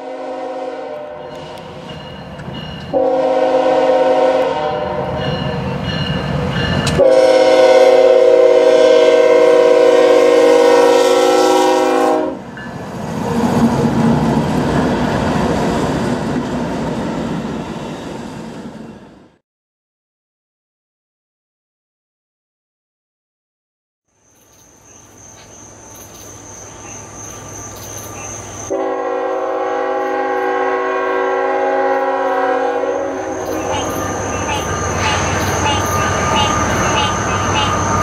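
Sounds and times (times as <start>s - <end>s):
locomotive air horn blasts: 0.0s - 1.8s, 2.9s - 5.6s, 7.0s - 12.4s, 28.7s - 37.9s
freight train rumbling and clattering: 1.2s - 7.3s, 12.4s - 19.0s, 25.9s - 38.0s.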